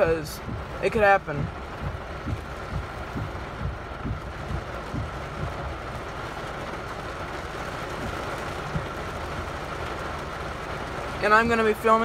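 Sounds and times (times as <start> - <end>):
low thumps: 0.0 - 9.3
heavy rain on car roof: 0.0 - 12.0.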